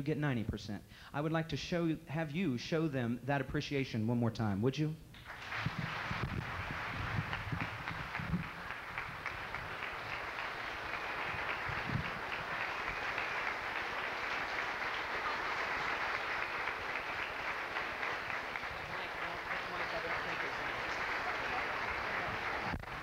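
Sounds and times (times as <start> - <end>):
audience applauding: 5.2 - 23.0.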